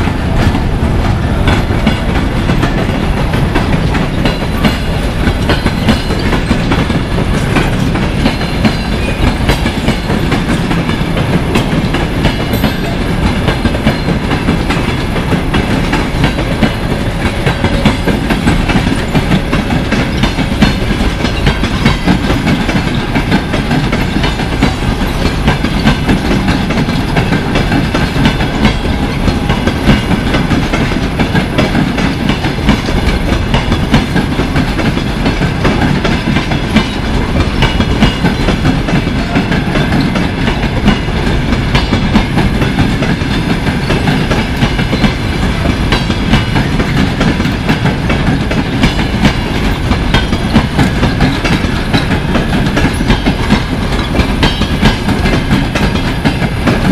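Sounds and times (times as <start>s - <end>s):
train wheels clicking over rail joints: 0.0s - 56.9s.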